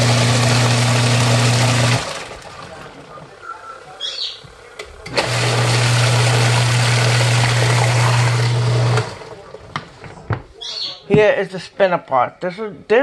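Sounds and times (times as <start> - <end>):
washing machine motor humming: 0.0 - 9.8.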